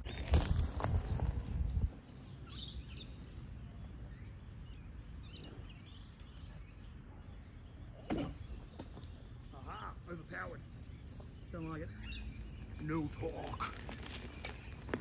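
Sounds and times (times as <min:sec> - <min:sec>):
electric unicycle rolling over grass: 0:00.0 - 0:03.9, 0:12.1 - 0:15.0.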